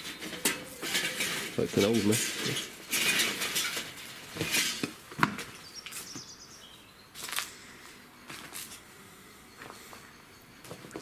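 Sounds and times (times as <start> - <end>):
scuffs and rustles of people moving: 7.2 - 8.8.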